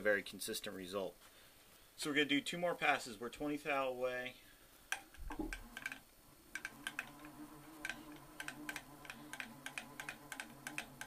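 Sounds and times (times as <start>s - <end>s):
faint steady hum: 0.0s - 11.0s
milling machine table clicking: 4.9s - 11.0s.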